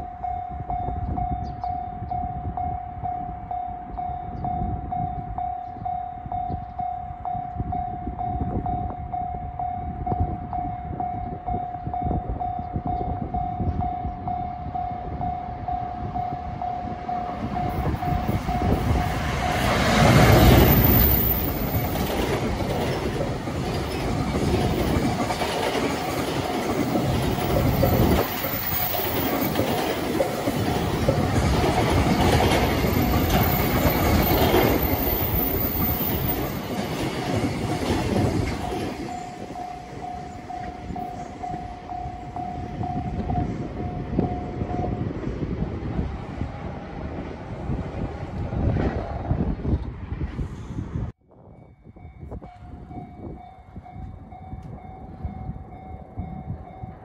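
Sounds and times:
level crossing warning alarm: 0:00.0 - 0:22.1, 0:38.1 - 0:45.1
electric locomotive passing: 0:00.0 - 0:57.0
train wheels clattering over rail joints: 0:18.8 - 0:39.3.

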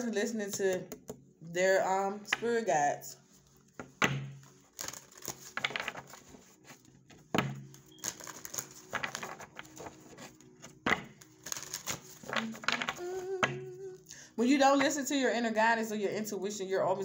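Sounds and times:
cards being shuffled: 0:03.7 - 0:13.9.

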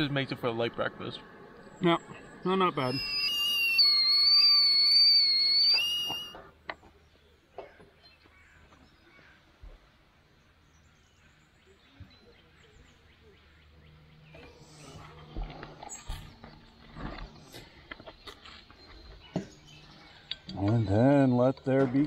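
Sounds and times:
kettle whistling: 0:01.8 - 0:06.5.

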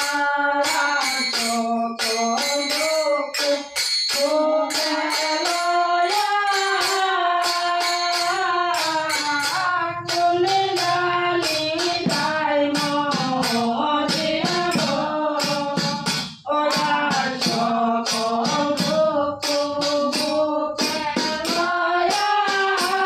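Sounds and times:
small hand cymbals: 0:00.0 - 0:23.0
women singing in unison: 0:00.0 - 0:23.0.

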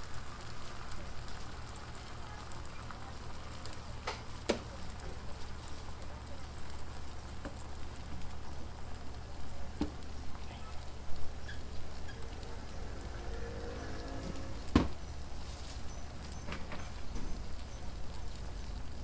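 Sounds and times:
food sizzling on griddle: 0:00.0 - 0:19.0
low hum: 0:11.3 - 0:15.2.

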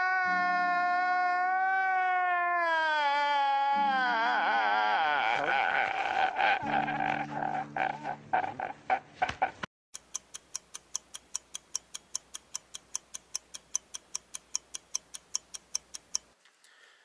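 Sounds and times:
man sobbing and wailing: 0:00.0 - 0:09.6
clock ticking quickly: 0:10.0 - 0:16.4.

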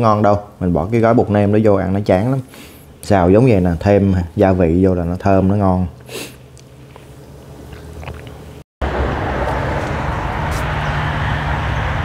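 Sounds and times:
low hum: 0:07.2 - 0:12.0
street background rush: 0:08.8 - 0:12.0.

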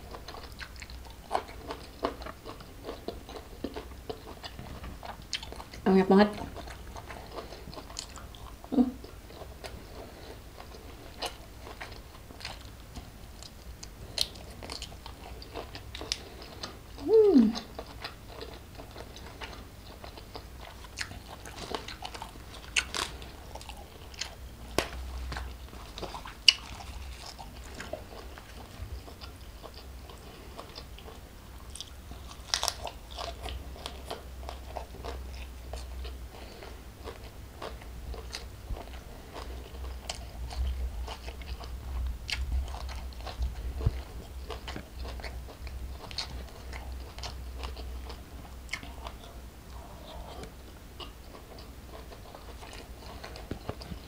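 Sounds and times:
close chewing and crunching: 0:00.0 - 0:54.0
person humming falling in pitch: 0:17.0 - 0:17.6.

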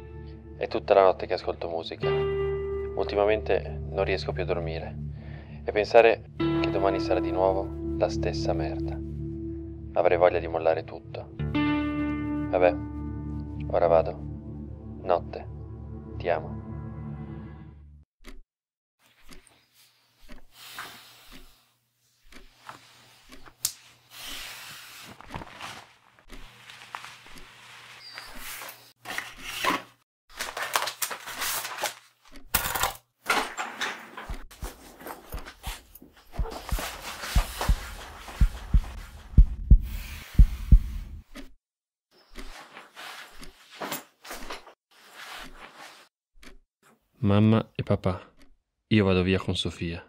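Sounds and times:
cloth rustling: 0:22.5 - 0:32.2, 0:34.5 - 0:39.4, 0:42.4 - 0:46.1
heartbeat thumps: 0:36.3 - 0:41.4.

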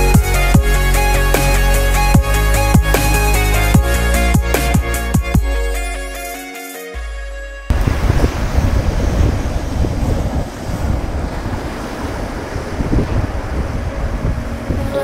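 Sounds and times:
wind buffeting microphone: 0:07.7 - 0:15.0.

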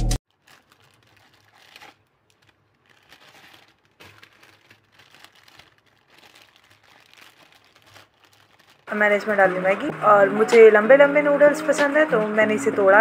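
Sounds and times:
plastic wrapper crinkling: 0:00.2 - 0:09.8.

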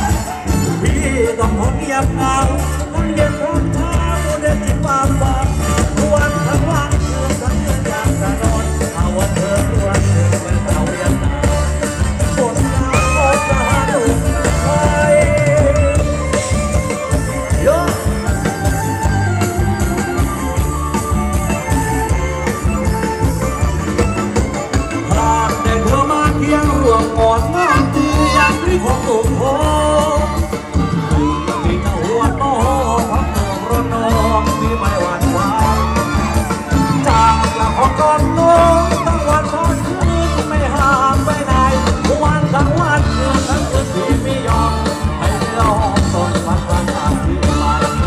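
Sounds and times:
drum kit steady beat: 0:00.0 - 0:48.0
person singing melody: 0:00.0 - 0:48.0.

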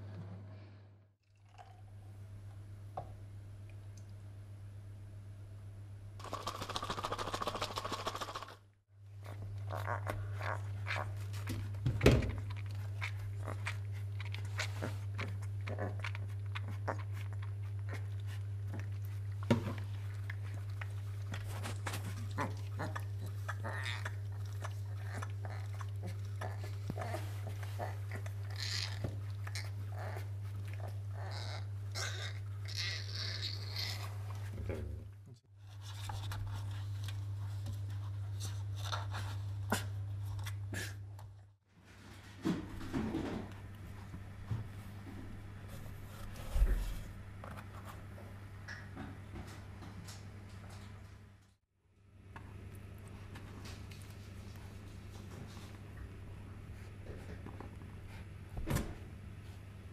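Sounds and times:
cub suckling wet smacking: 0:09.2 - 0:34.6.

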